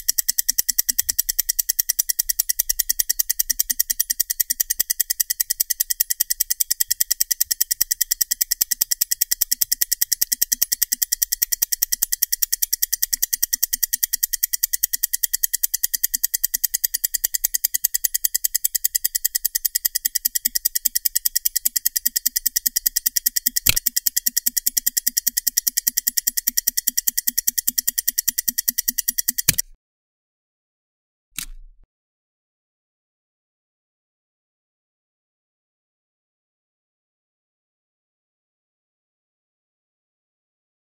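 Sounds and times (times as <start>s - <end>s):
stopwatch ticking: 0.0s - 29.6s
loud click: 23.0s - 25.7s, 28.0s - 29.7s, 31.4s - 31.8s.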